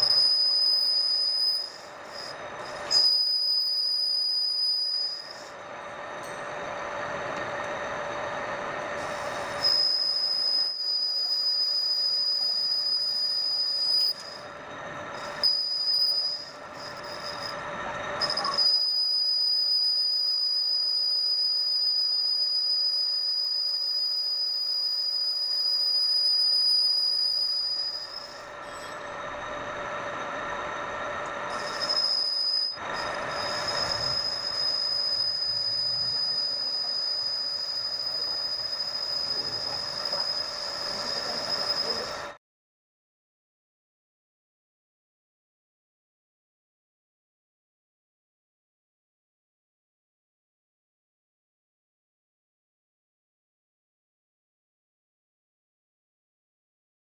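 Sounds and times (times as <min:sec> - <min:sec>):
cutting tool squealing: 0:00.0 - 0:05.6, 0:08.8 - 0:42.4
lathe whine: 0:00.0 - 0:42.4.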